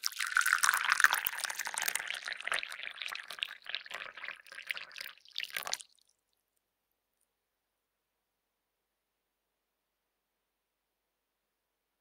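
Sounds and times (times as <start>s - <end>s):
coffee pouring into a cup: 0.0s - 6.1s.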